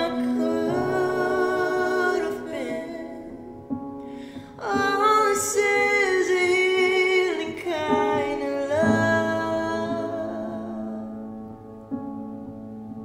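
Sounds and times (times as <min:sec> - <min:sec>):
woman singing worship song: 0:00.0 - 0:03.6, 0:04.3 - 0:11.1.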